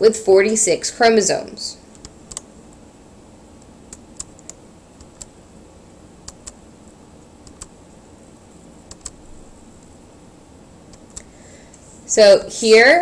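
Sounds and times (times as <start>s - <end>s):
faint background hiss: 0.0s - 13.0s
sharp computer clicks: 1.9s - 2.5s, 3.6s - 5.4s, 6.2s - 6.6s, 7.4s - 7.8s, 8.8s - 9.2s, 10.9s - 11.3s.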